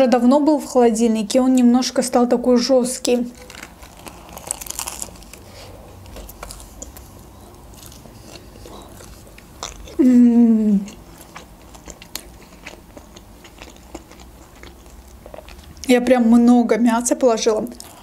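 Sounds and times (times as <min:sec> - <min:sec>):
biting into a burrito: 0:03.3 - 0:10.1
chewing with wet mouth clicks: 0:06.1 - 0:10.0, 0:10.8 - 0:16.0
person humming mmm: 0:09.9 - 0:11.0.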